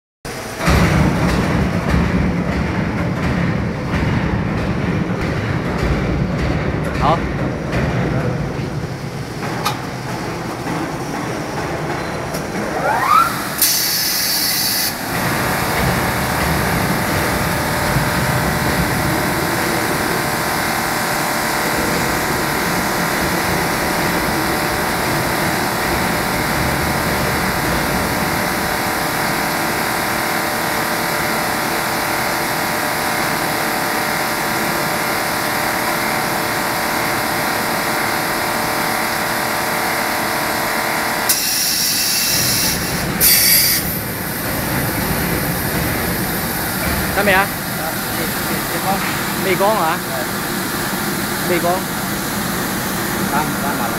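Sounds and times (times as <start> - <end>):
sharp hiss: 13.6 - 15.0.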